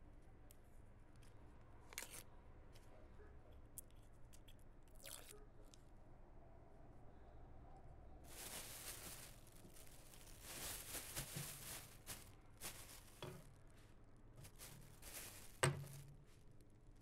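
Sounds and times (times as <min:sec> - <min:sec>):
onion skin crackling: 0:08.3 - 0:13.4, 0:14.4 - 0:16.0.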